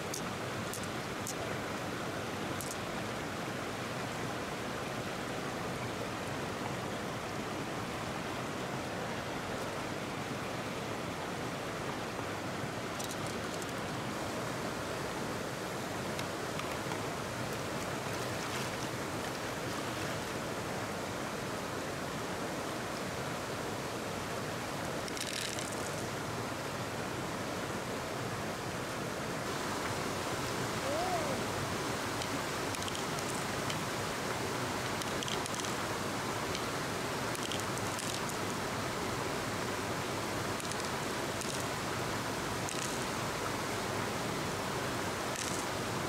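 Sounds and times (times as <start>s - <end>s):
flowing river water: 0.0s - 46.0s
faint clicks: 32.2s - 33.8s.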